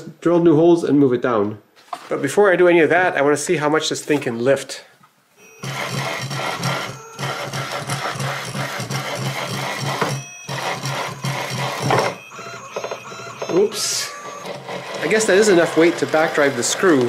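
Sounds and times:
stepper motor buzzing hum: 5.6 - 17.0.

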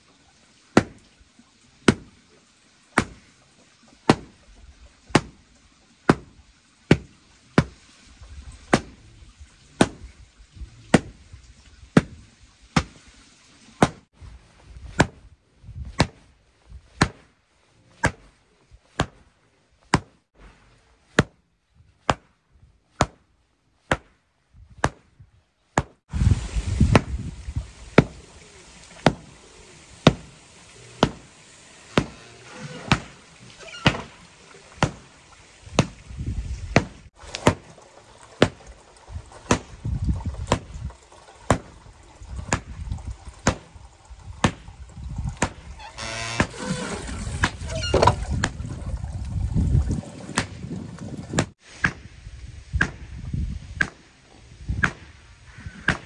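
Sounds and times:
wood chopping strikes: 0.8 - 1.0, 1.8 - 2.1, 3.0 - 3.3, 4.1 - 4.4, 5.1 - 5.4, 6.1 - 7.8, 8.7 - 9.0, 9.8 - 10.1, 10.9 - 11.2, 13.8 - 14.1, 14.9 - 15.2, 15.9 - 16.2, 17.0 - 17.3, 18.0 - 18.3, 19.0 - 19.3, 23.0 - 23.2, 23.9 - 24.2, 24.8 - 25.1, 25.8 - 26.0, 28.0 - 28.2, 29.0 - 29.3, 30.0 - 30.4, 31.0 - 33.2, 33.8 - 34.2, 34.8 - 36.1, 36.7 - 37.7, 39.4 - 39.8, 41.5 - 41.7, 42.5 - 42.7, 43.4 - 43.7, 44.4 - 44.6, 45.4 - 45.7, 50.3 - 50.6, 52.8 - 53.1, 53.8 - 54.1, 54.8 - 55.2, 55.8 - 56.0
background hiss: 26.1 - 37.6.

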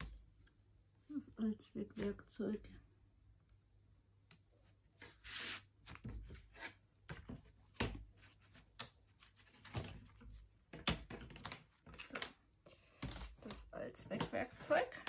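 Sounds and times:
scraping rub: 5.0 - 5.7.

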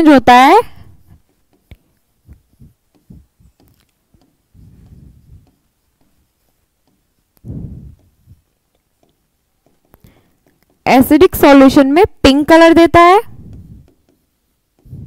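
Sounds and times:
chalk tapping on a blackboard: 1.0 - 11.1, 13.3 - 15.0
dull low thumps: 2.2 - 6.2, 6.8 - 9.0, 13.2 - 14.0, 14.7 - 15.0.

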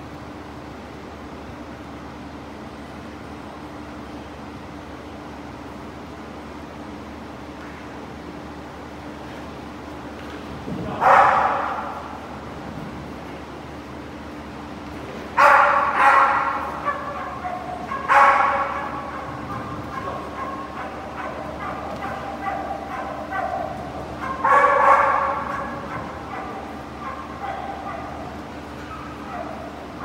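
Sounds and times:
dog barking with echo: 10.9 - 12.2, 15.4 - 30.0.

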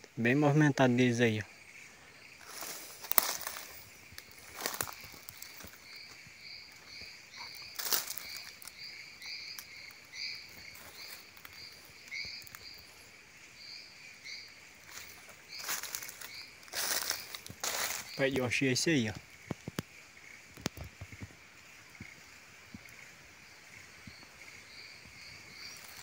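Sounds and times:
footsteps crunching on dry leaves: 2.4 - 8.9, 9.5 - 13.0, 14.8 - 18.5, 25.1 - 26.0.

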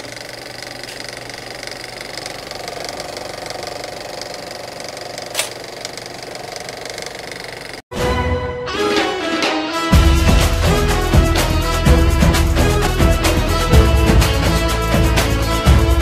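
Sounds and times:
film projector clattering: 0.0 - 7.9.

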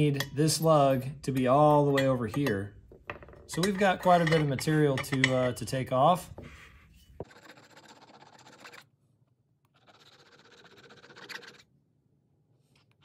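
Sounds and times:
needle file rasping on steel: 7.2 - 8.9.

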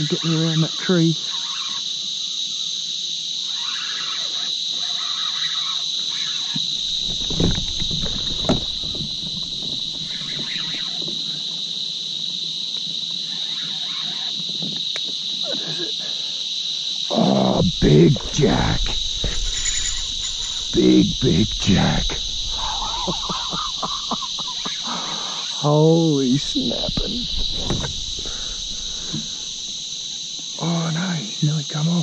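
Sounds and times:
insects chirping chorus: 0.0 - 32.0
dull knocks: 6.6 - 11.2, 17.8 - 24.8, 26.5 - 30.5.

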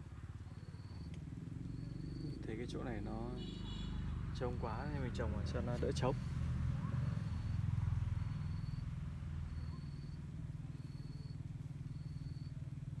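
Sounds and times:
small engine running: 0.0 - 3.8.

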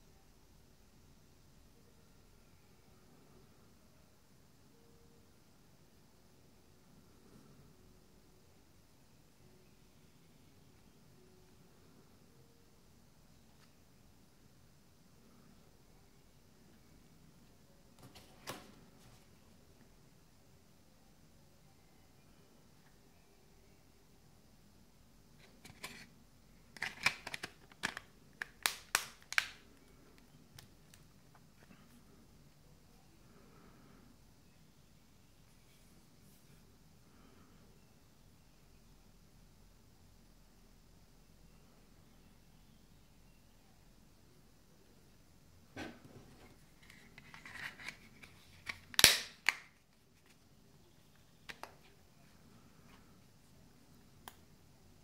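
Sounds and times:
plastic clips snapping into place: 48.9 - 49.7.

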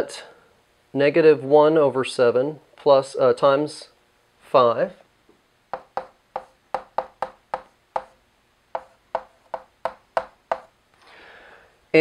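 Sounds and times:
chalk tapping on chalkboard: 5.7 - 10.7.

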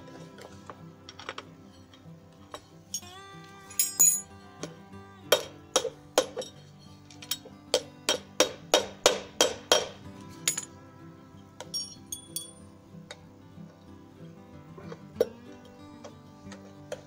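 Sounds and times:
background music: 0.0 - 17.0
sharp metallic clinks: 2.9 - 4.4, 5.4 - 7.5, 9.7 - 10.8, 11.6 - 12.7.

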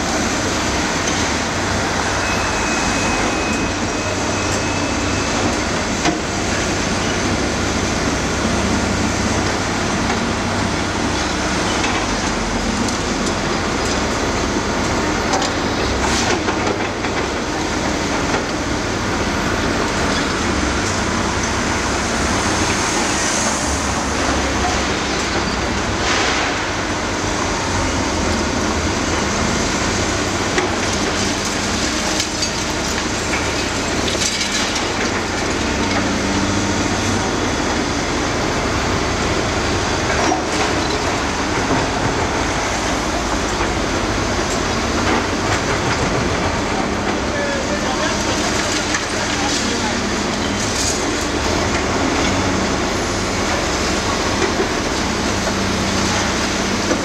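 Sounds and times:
excavator diesel engines running: 0.0 - 57.0
buckets digging concrete rubble: 28.5 - 37.4, 40.1 - 57.0.

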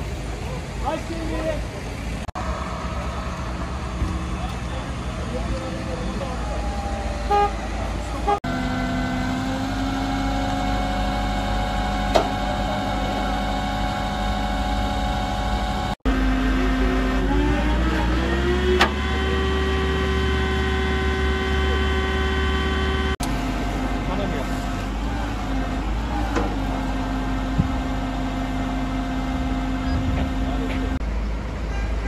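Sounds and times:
truck engine running: 0.0 - 32.0.

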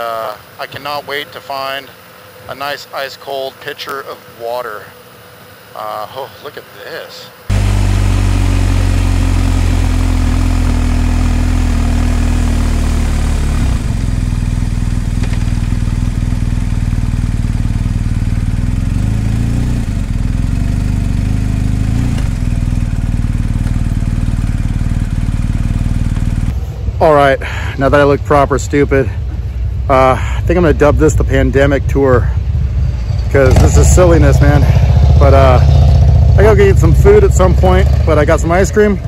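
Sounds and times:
motorcycle engine running: 7.5 - 27.0, 29.1 - 39.0.

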